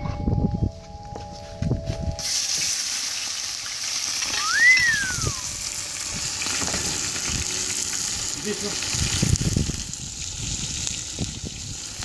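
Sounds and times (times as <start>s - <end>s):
onions sizzling in hot oil: 2.2s - 12.0s
short whistle: 4.4s - 5.5s.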